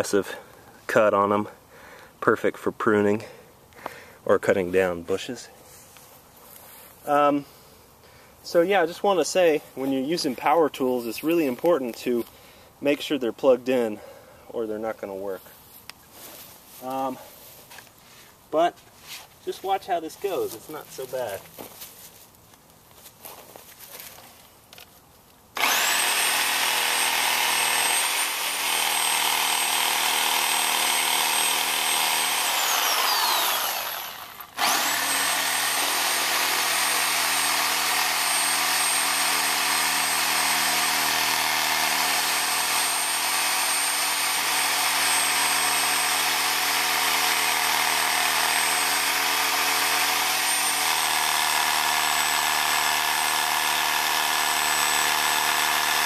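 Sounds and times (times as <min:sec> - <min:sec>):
reciprocating saw cutting: 0:25.6 - 0:56.0.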